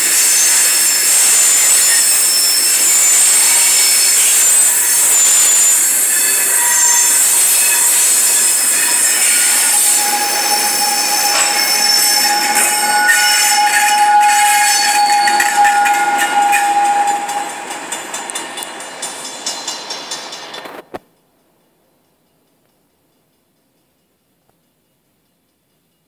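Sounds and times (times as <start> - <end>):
low squeal tone: 0.0 - 20.6
train wheels screeching: 0.0 - 21.0.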